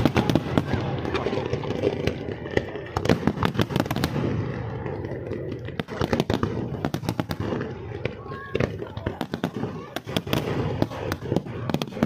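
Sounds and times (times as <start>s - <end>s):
fireworks bangs and pops: 0.0s - 12.0s.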